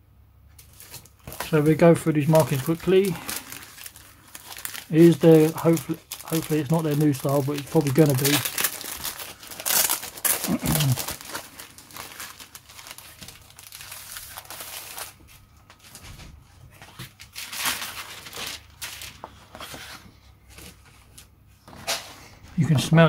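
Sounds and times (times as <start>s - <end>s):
plastic bag crinkling: 0.6s - 16.0s, 16.8s - 19.4s.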